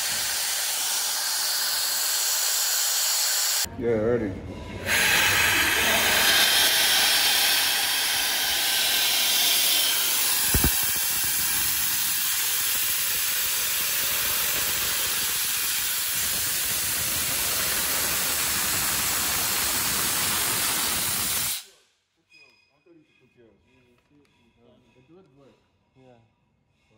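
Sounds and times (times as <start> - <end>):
compressed air hissing: 0.0 - 3.7, 4.8 - 21.6.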